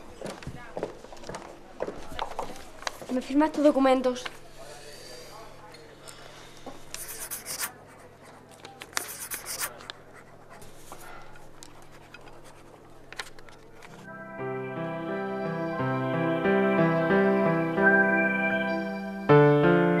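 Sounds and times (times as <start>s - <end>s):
pen scratching on paper: 7.0s - 13.0s.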